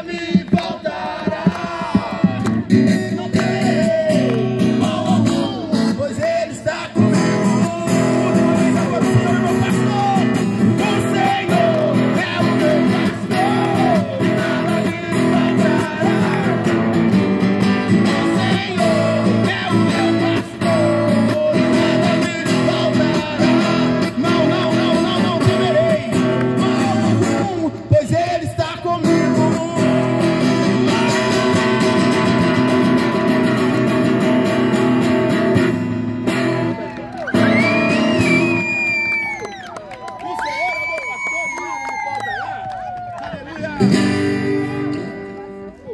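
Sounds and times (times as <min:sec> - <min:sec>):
man singing into microphone: 0:00.0 - 0:16.7, 0:18.1 - 0:32.7
acoustic guitar strumming: 0:01.9 - 0:36.8, 0:43.8 - 0:45.6.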